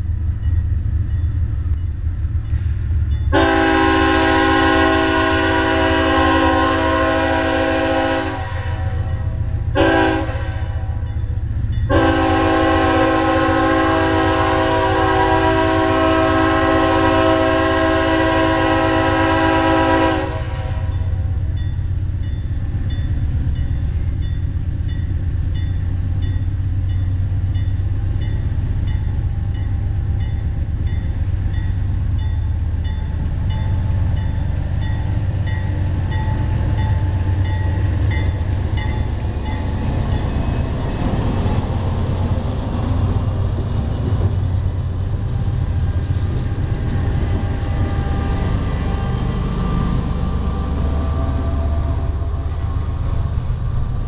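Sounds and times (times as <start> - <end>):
diesel engine rumbling: 0.0 - 54.0
locomotive air horn: 3.3 - 11.1, 11.9 - 21.4, 45.8 - 53.4.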